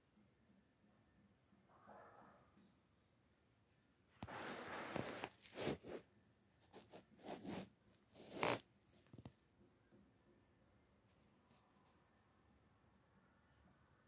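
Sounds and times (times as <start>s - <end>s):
rustling and scraping: 4.2s - 9.5s, 11.1s - 12.0s.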